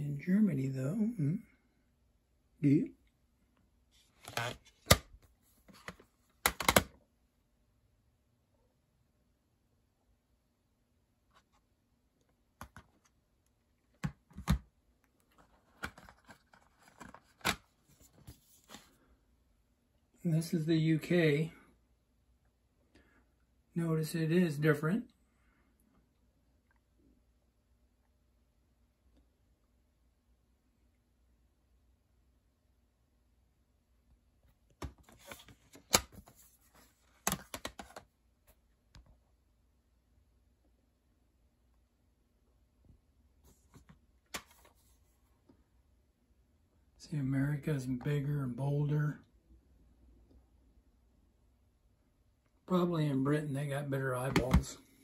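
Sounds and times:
plastic case clicks and clatter: 5.7s - 6.9s, 14.0s - 14.6s, 15.4s - 17.6s, 37.2s - 38.1s
plastic case clicks and knocks: 6.4s - 6.9s.

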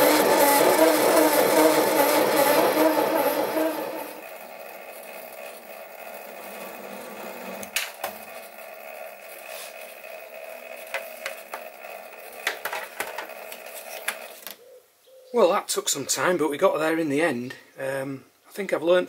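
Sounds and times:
lathe motor whine: 0.0s - 14.4s.

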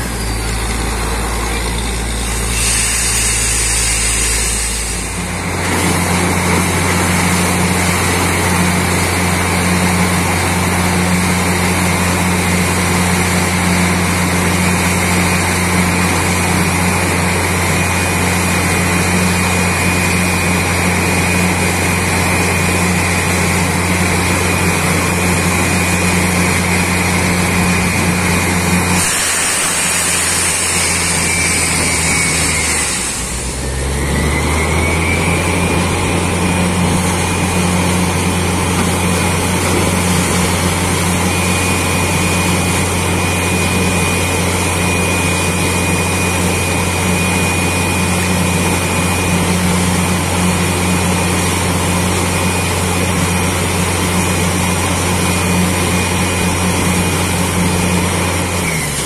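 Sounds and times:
drill whine: 0.0s - 59.0s
drilling rig engine drone: 0.0s - 59.0s
air blowing hiss: 2.2s - 5.6s, 27.2s - 33.6s.

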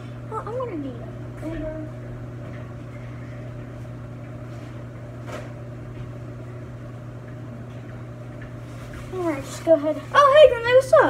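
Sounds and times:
low machine hum: 0.0s - 11.0s.

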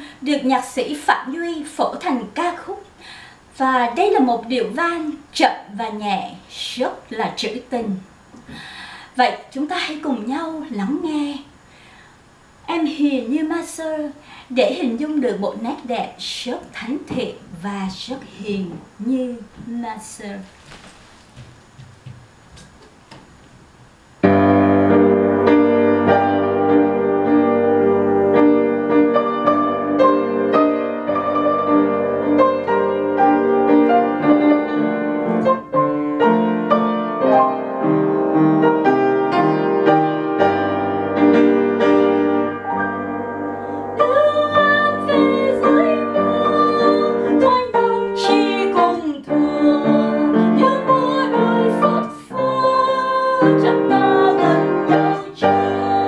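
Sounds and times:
upright piano playing waltz: 24.2s - 56.0s.

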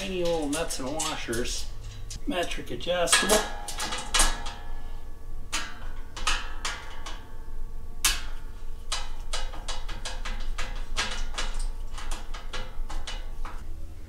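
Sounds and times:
steel ringing: 0.0s - 13.8s
low hum: 0.0s - 14.0s.

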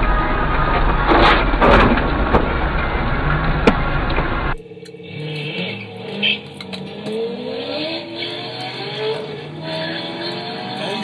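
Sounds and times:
car engines accelerating hard: 0.0s - 11.0s.

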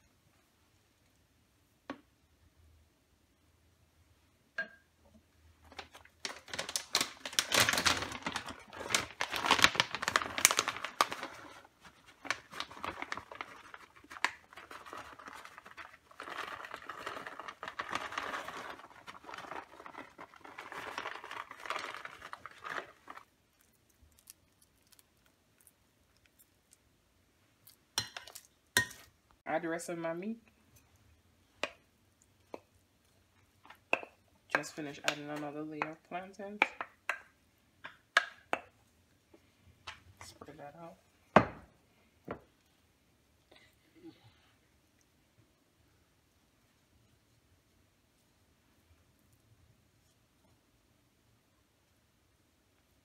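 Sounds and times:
plastic bag crinkling: 5.6s - 25.1s.

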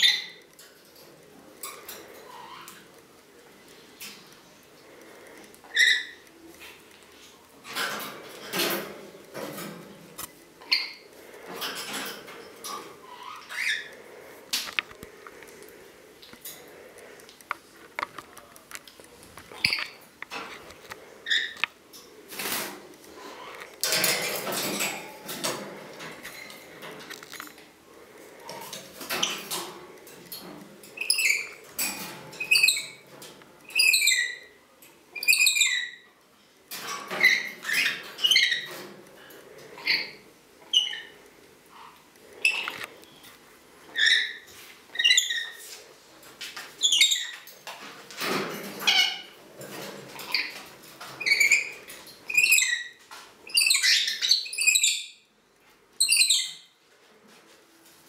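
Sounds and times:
beak and toy rattling on wire cage: 7.6s - 10.0s, 10.6s - 14.6s, 22.3s - 27.6s, 28.4s - 34.4s
bird chirping: 53.5s - 55.2s.

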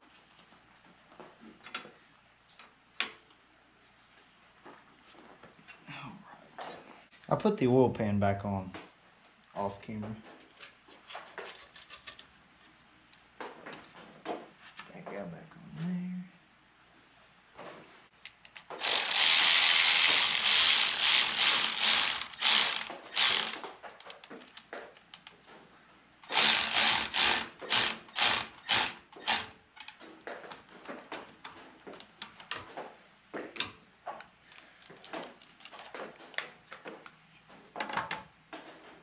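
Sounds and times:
socket ratchet clicking: 18.8s - 24.3s, 26.3s - 29.5s.

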